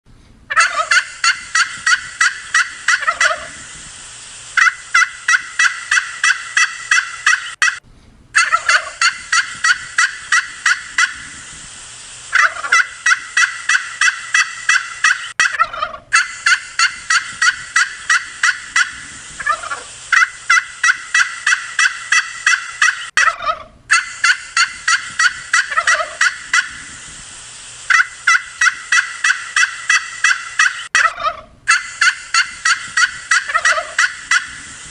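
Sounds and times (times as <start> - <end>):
turkeys gobbling: 0.5 - 3.7, 4.6 - 7.8, 8.4 - 11.3, 12.3 - 26.9, 27.9 - 34.8.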